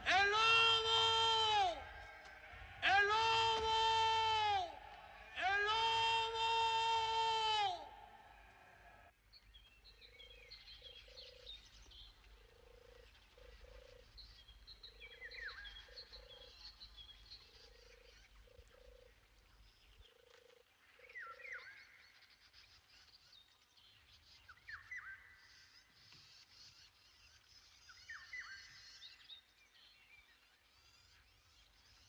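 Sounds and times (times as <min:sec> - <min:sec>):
songbirds chirping and whistling: 0:00.0 - 0:20.1, 0:21.0 - 0:32.0.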